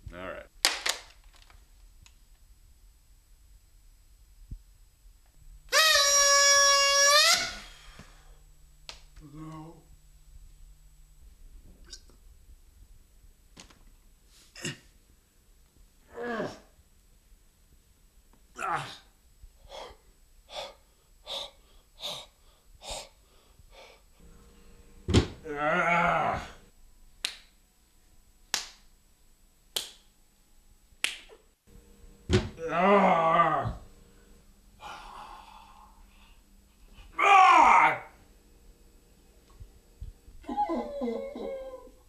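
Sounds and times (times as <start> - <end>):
party horn toot: 5.7 - 8.0.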